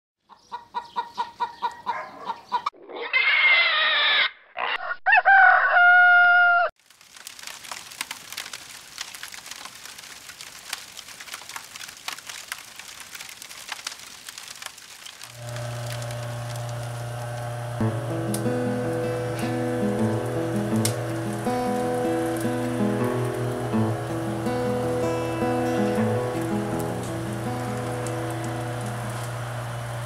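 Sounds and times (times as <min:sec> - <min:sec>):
hens clucking: 0:00.3 - 0:03.2
rooster crowing: 0:03.4 - 0:06.7
soft crackling hiss: 0:06.8 - 0:30.0.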